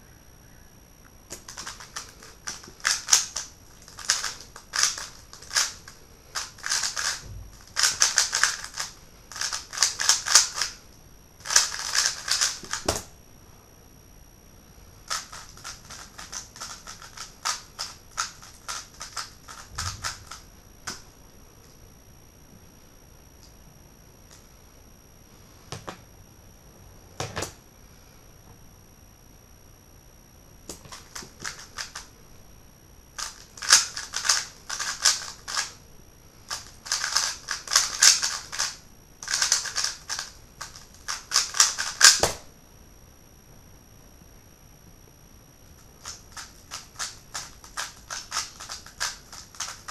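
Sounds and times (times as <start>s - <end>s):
puzzle cube clicking: 1.3s - 10.8s, 11.4s - 13.0s, 15.1s - 21.0s, 30.7s - 32.0s, 33.2s - 35.7s, 36.5s - 42.4s, 46.0s - 49.9s.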